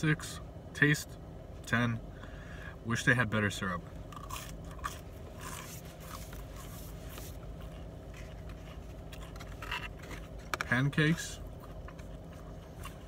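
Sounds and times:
low hum inside car: 0:00.0 - 0:13.0
soft scrapes and rustles: 0:05.4 - 0:10.8.

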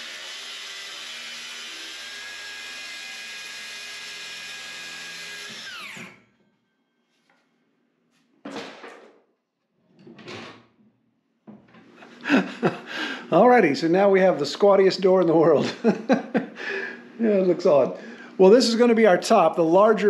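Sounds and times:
circular saw cutting wood: 0:00.0 - 0:06.4
saw motor winding down: 0:00.0 - 0:06.4.

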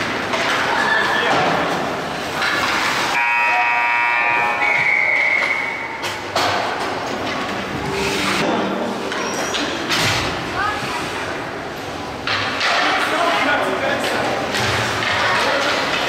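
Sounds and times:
crowd noise: 0:00.0 - 0:16.0
arena horn blast: 0:03.2 - 0:05.5.

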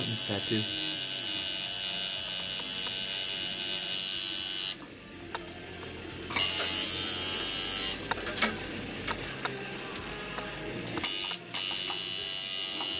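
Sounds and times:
tattoo machine buzzing: 0:00.0 - 0:04.8, 0:06.3 - 0:08.1, 0:11.0 - 0:12.9.

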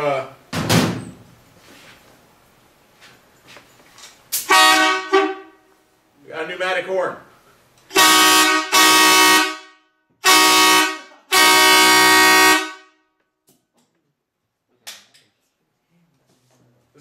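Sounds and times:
air horn blasts: 0:04.4 - 0:05.7, 0:07.9 - 0:13.1.

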